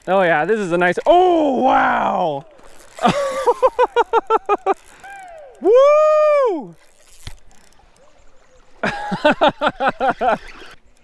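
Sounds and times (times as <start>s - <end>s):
fishing reel ratcheting: 0.0s - 5.8s, 6.7s - 8.7s, 9.8s - 11.0s
man whooping: 1.5s - 2.5s, 4.5s - 6.8s.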